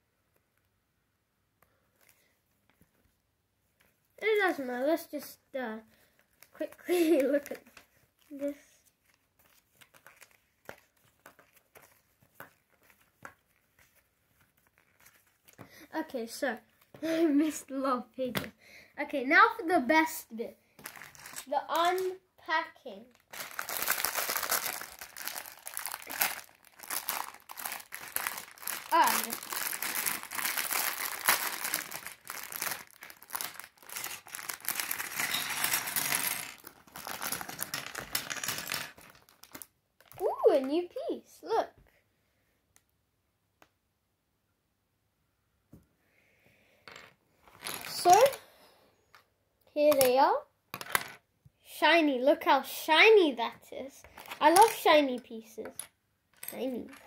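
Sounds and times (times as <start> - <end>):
plastic bag crinkling: 6.4 - 15.6, 20.8 - 22.2, 23.0 - 40.3, 47.5 - 48.4, 54.1 - 54.9
paper pages flipping: 6.5 - 15.6, 23.1 - 40.2
plastic bricks clattering on table: 31.4 - 39.6, 46.8 - 48.4, 50.7 - 51.2, 55.6 - 57.0.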